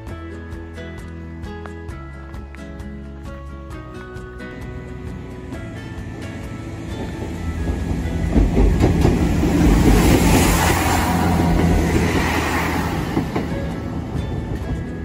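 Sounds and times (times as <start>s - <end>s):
train crossing steel bridge: 0.0s - 15.0s
train wheels clattering: 4.6s - 15.0s.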